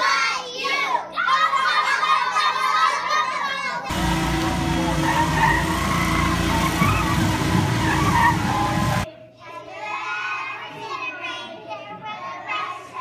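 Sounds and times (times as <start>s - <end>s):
children singing: 0.0s - 13.0s
crowd voices: 2.9s - 9.3s
truck engine running: 3.9s - 9.0s.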